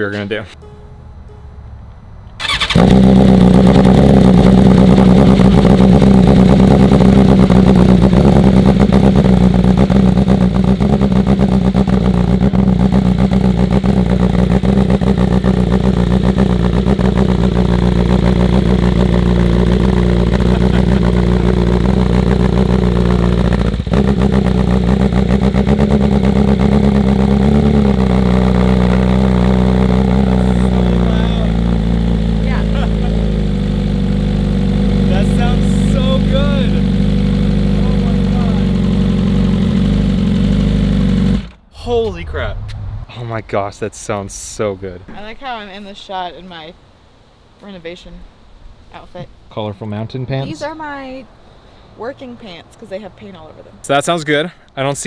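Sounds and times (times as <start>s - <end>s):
motorcycle engine idling loudly: 2.4s - 41.6s.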